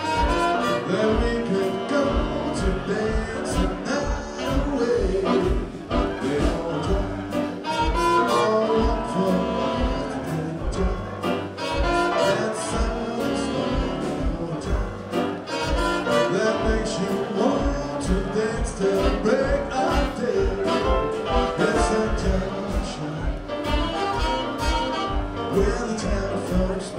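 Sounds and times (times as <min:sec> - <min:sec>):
live jazz band playing: 0:00.0 - 0:26.9.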